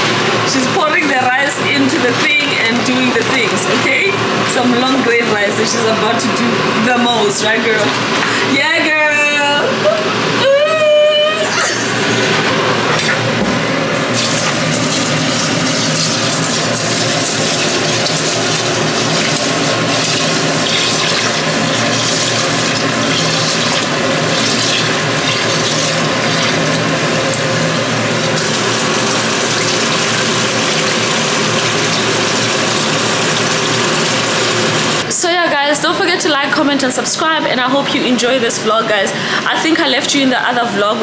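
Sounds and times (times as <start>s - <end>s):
faucet running into a pot: 14.0s - 35.0s
rice being rinsed by hand: 14.0s - 35.0s.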